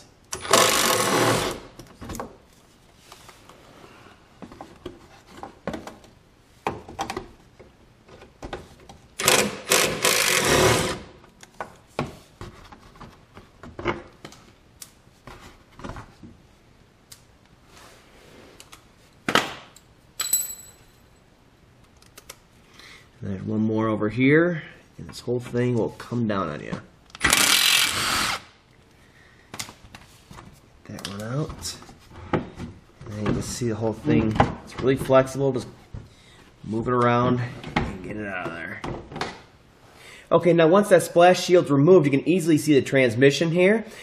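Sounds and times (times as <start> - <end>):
cordless drill spinning bolts: 0.3 - 1.6, 9.2 - 11.0, 27.2 - 28.4.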